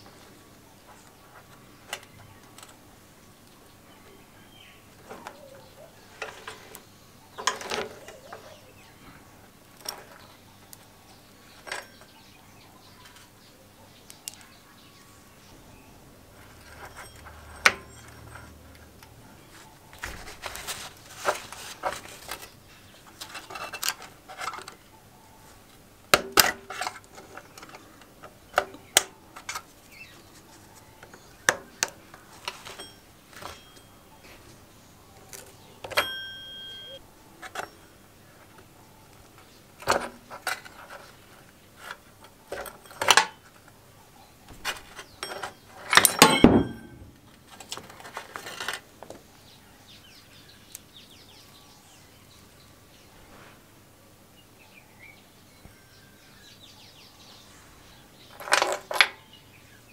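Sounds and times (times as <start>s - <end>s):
metal chain clinking and rattling: 16.4s - 18.9s, 45.1s - 47.2s
short metallic ring: 35.9s - 37.0s, 45.2s - 47.2s.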